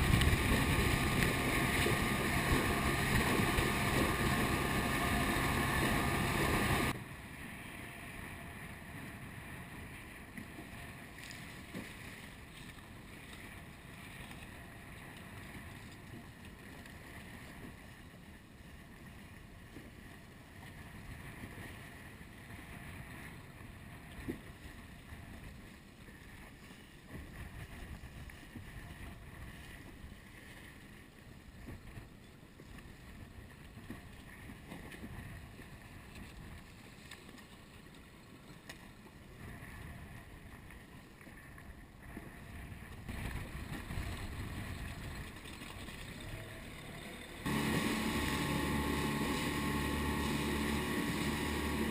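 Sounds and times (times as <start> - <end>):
water lapping: 0.0 - 7.0, 9.1 - 51.9
wind buffeting microphone: 0.0 - 7.0
rushing wind and boat wake: 0.0 - 51.9.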